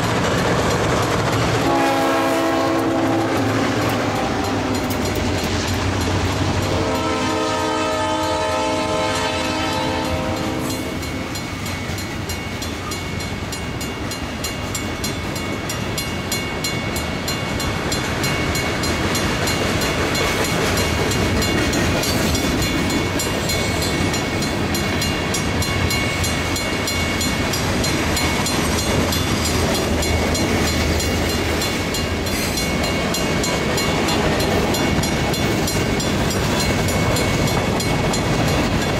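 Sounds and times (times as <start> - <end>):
train wheels rumbling on rail: 0.0 - 38.9
locomotive horn: 1.6 - 4.8, 6.6 - 11.3.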